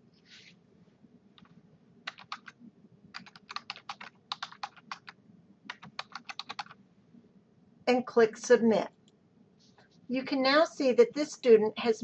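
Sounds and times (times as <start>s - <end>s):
keyboard keys clicking: 1.4s - 6.8s.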